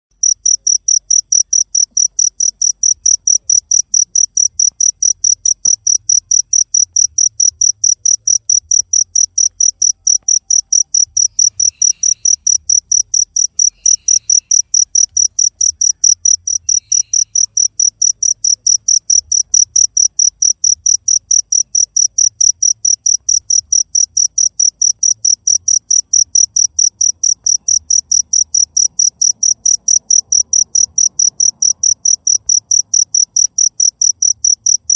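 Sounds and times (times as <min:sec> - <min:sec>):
cricket chirping: 0:00.1 - 0:34.9.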